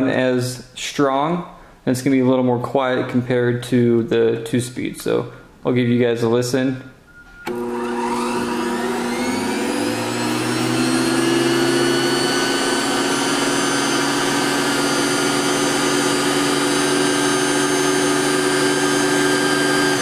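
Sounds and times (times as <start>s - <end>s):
vacuum motor whine: 7.4s - 20.0s.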